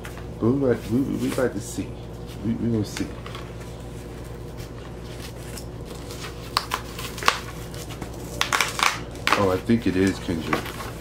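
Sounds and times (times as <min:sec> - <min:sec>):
cardboard tearing: 0:05.1 - 0:11.0.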